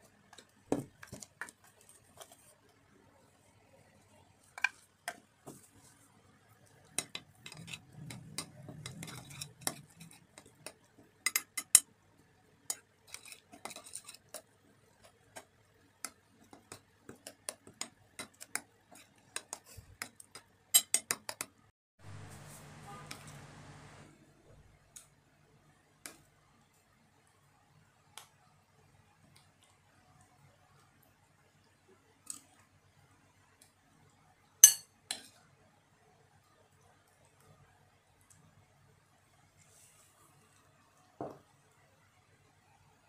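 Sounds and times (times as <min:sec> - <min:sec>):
spoon stirring wet mixture: 0:00.0 - 0:25.2, 0:25.8 - 0:27.3, 0:28.1 - 0:33.8
spoon clinking against bowl: 0:11.3 - 0:11.9, 0:20.8 - 0:21.5, 0:34.6 - 0:35.3.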